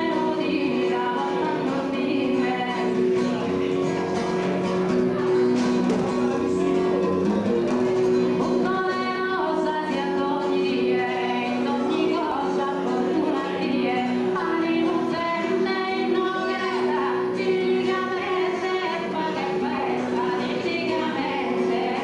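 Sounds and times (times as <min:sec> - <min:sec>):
woman singing into microphone: 0:00.0 - 0:03.5, 0:08.5 - 0:22.0
acoustic guitar: 0:00.0 - 0:22.0.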